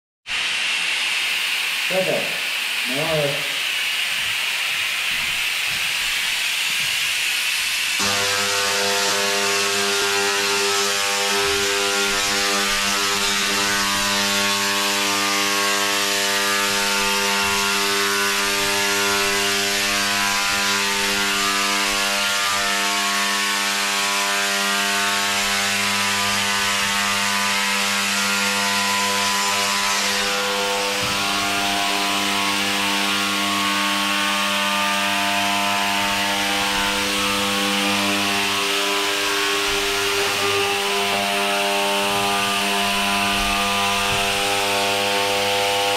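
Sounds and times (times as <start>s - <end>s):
laser cleaner buzzing and hissing: 0.3s - 45.9s.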